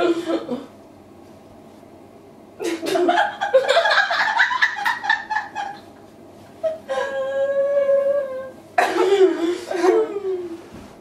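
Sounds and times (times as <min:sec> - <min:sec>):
women laughing: 0:02.6 - 0:06.0, 0:06.6 - 0:08.2, 0:08.8 - 0:10.5.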